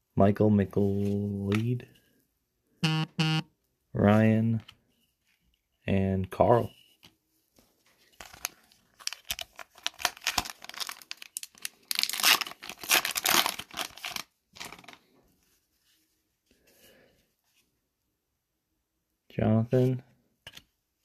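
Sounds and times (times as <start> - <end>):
foil wrapper crinkling: 8.2 - 15.0
foil wrapper tearing: 8.2 - 15.0.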